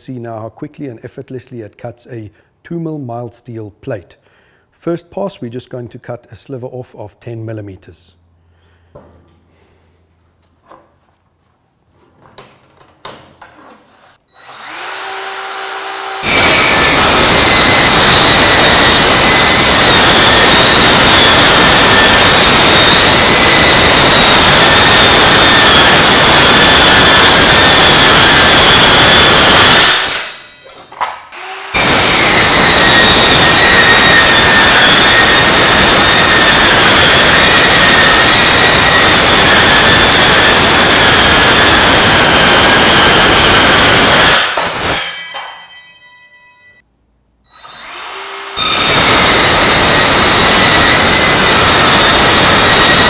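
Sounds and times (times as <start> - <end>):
circular saw cutting steel: 14.3 - 30.8, 31.4 - 46.0, 47.5 - 53.0.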